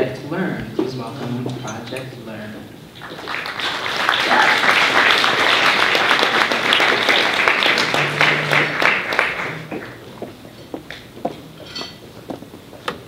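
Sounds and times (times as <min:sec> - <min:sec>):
audience applauding: 0:03.0 - 0:10.1.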